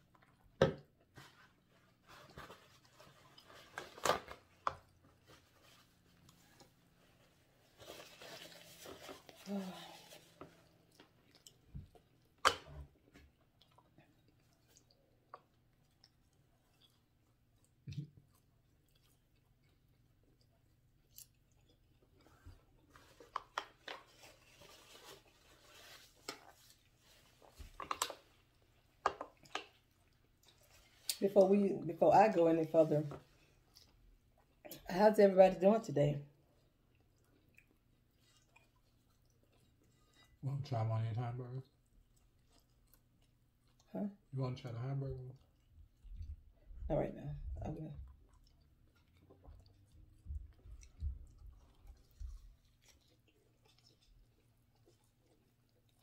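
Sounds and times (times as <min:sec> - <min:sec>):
paper rustling and crackling: 0:07.5 - 0:10.6.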